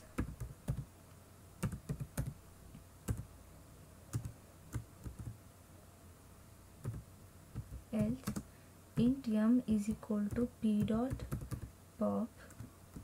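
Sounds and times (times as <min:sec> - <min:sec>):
computer keyboard typing: 0:00.2 - 0:00.9, 0:01.6 - 0:02.4, 0:03.0 - 0:03.3, 0:04.1 - 0:05.4, 0:06.8 - 0:11.7, 0:12.5 - 0:13.0.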